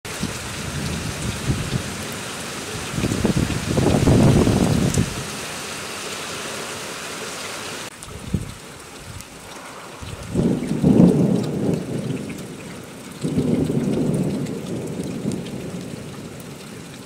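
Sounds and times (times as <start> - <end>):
steady rain falling: 0.0 - 17.0
low rumble of thunder: 0.1 - 5.2, 8.2 - 9.2, 10.0 - 17.0.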